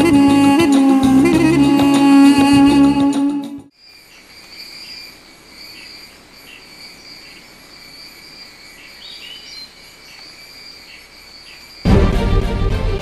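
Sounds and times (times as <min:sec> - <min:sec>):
rising insect call: 0:03.3 - 0:11.9
insect chorus trilling: 0:03.7 - 0:11.9.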